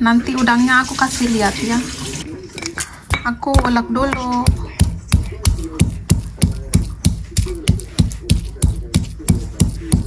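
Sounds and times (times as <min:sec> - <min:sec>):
stone pestle pounding in mortar: 0:03.1 - 0:10.0.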